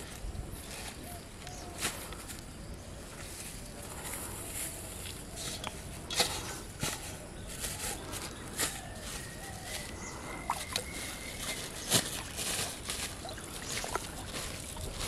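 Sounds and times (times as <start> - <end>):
bags rustling: 5.9 - 15.0.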